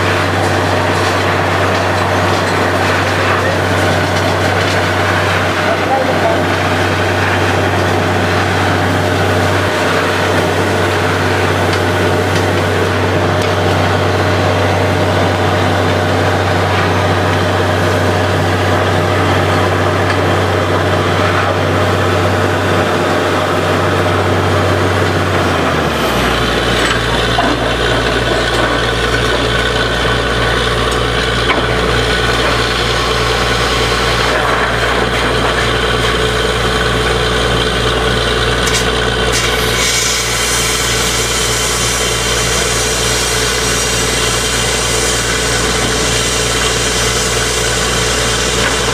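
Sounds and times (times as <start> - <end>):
drilling rig drone: 0.0 - 48.9
drilling hiss: 39.3 - 48.9.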